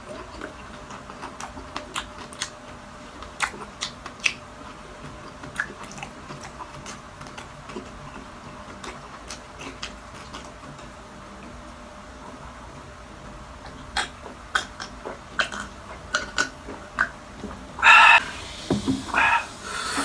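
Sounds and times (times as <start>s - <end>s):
crunchy chewing: 0.0s - 12.9s, 13.5s - 18.2s
mouth clicks: 13.6s - 17.2s, 17.8s - 18.4s, 19.1s - 20.0s.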